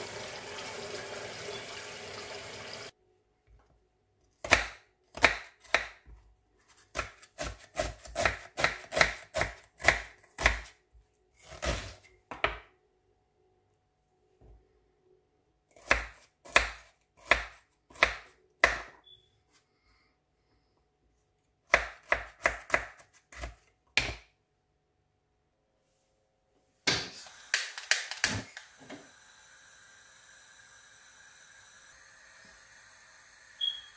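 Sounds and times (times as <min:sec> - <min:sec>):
knife chopping on cutting board: 0:04.4 - 0:06.2, 0:06.9 - 0:10.7, 0:15.8 - 0:18.9, 0:21.7 - 0:24.2.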